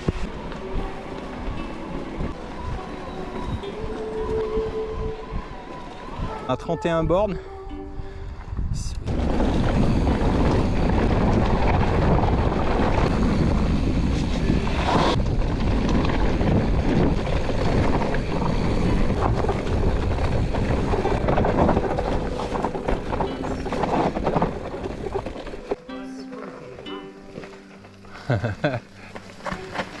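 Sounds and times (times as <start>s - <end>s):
wind rush on microphone: 0.0s - 25.7s
bike rattling over trail: 9.1s - 30.0s.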